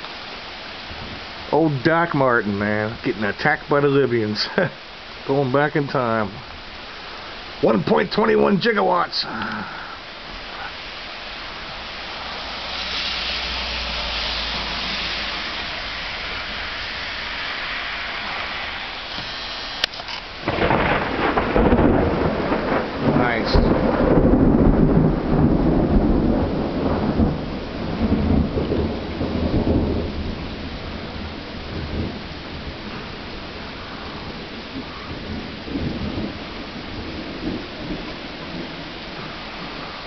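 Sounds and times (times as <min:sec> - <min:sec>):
steady rain hiss: 0:00.0 - 0:40.0
thunder clap and rumble: 0:20.4 - 0:40.0.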